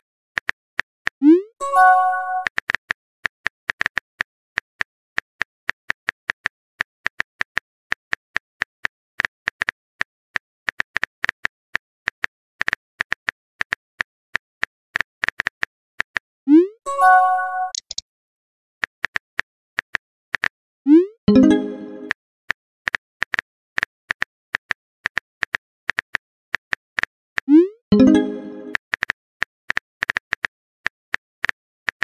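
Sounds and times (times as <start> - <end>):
phone keyboard typing clicks: 17.7 - 18.0.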